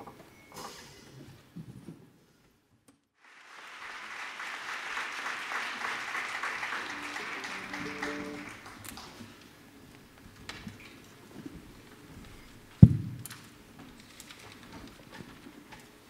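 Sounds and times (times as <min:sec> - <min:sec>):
audience applause: 0:03.2 - 0:09.4
sustained instrument notes: 0:06.5 - 0:08.8.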